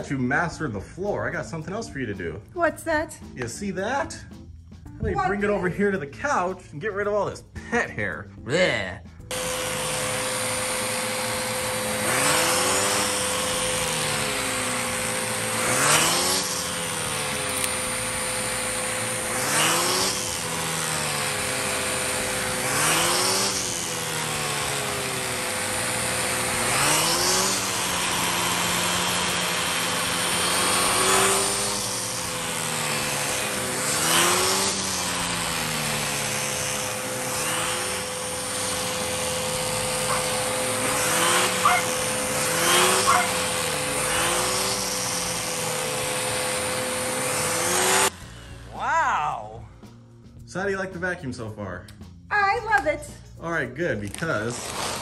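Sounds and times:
vacuum cleaner whine: 9.3 - 48.7, 54.5 - 55.0.

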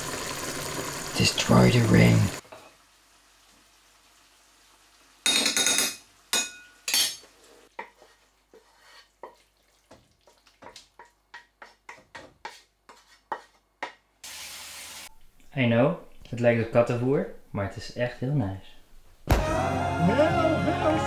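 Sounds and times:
spatula scraping frying pan: 7.2 - 9.5, 10.3 - 13.6.

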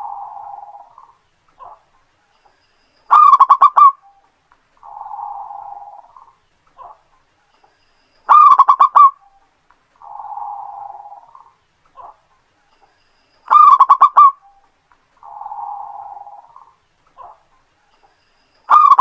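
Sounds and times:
dove cooing: 0.0 - 1.9, 3.1 - 4.1, 4.8 - 7.0, 8.3 - 9.4, 10.0 - 12.2, 13.5 - 14.6, 15.2 - 17.5, 18.7 - 19.0.

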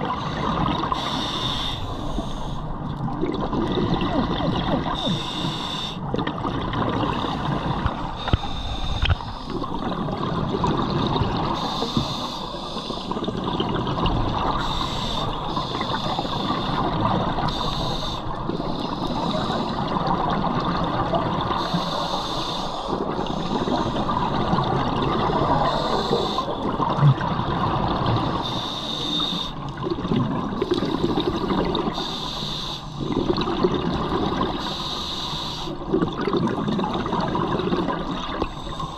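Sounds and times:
underwater bubbling: 0.0 - 38.9
hissing regulator breaths: 0.3 - 2.7, 4.9 - 6.0, 11.5 - 13.2, 14.6 - 19.9, 21.6 - 24.4, 25.5 - 26.6, 28.3 - 29.6, 30.7 - 33.1, 34.6 - 35.9.

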